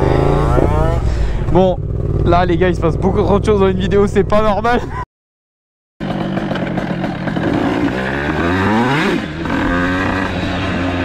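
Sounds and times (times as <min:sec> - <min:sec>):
motorcycle engine accelerating: 0:00.0 - 0:05.0, 0:06.0 - 0:11.0.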